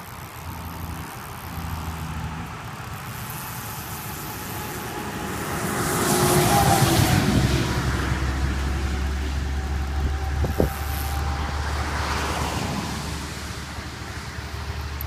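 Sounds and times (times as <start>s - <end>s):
wind buffeting microphone: 9.8s - 11.6s.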